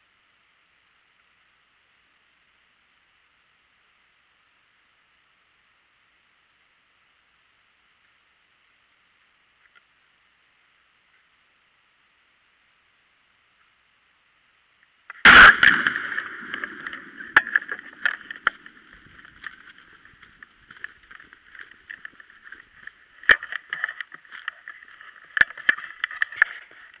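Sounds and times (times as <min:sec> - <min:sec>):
rustling: 0:14.9 - 0:27.0
shotgun blast: 0:15.2 - 0:19.6
clicks and knocks: 0:15.2 - 0:27.0.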